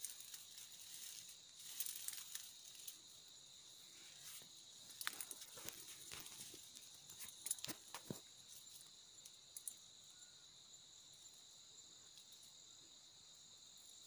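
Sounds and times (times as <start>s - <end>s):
dry brush crackling underfoot: 0.0s - 3.1s, 4.0s - 8.8s
insects chorus: 0.0s - 14.0s.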